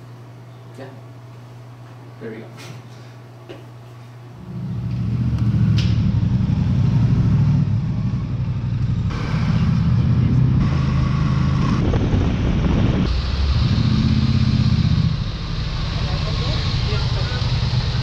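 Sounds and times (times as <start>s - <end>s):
motorcycle engine running: 4.4s - 18.0s.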